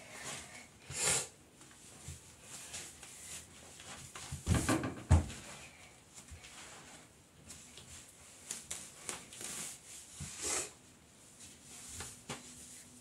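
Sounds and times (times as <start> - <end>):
objects knocking: 4.5 - 5.4.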